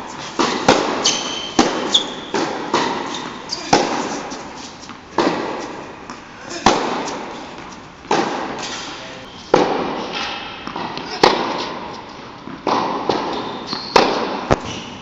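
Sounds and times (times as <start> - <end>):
tennis ball bouncing: 0.0 - 8.8, 9.5 - 14.8
tennis racket hitting ball: 0.0 - 14.8.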